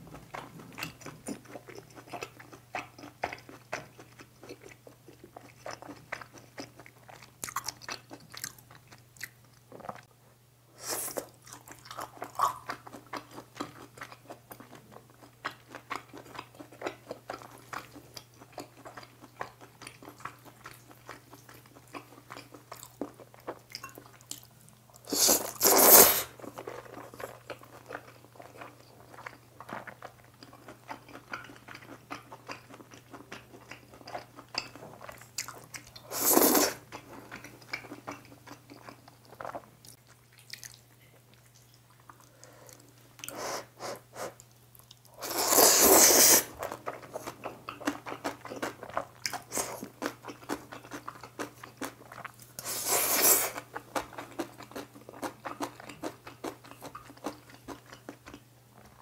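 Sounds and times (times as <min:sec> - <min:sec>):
wet chewing and mouth clicks: 0:00.1 - 0:10.1, 0:11.1 - 0:25.7, 0:26.3 - 0:43.4, 0:44.3 - 0:59.0
slurping noodles: 0:25.1 - 0:26.4, 0:36.1 - 0:36.8, 0:45.2 - 0:46.6, 0:52.6 - 0:53.6.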